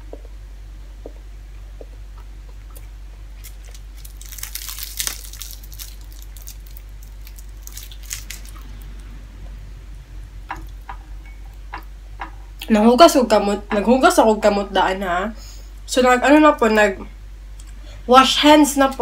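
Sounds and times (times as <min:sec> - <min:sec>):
crisp fried fish tearing: 0:03.4 - 0:08.6.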